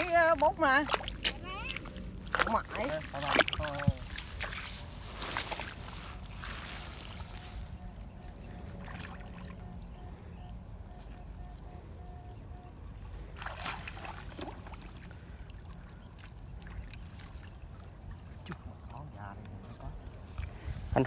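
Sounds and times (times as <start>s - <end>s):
swishing through wet grass and water: 0.0s - 21.0s
faint high whine: 5.0s - 14.8s.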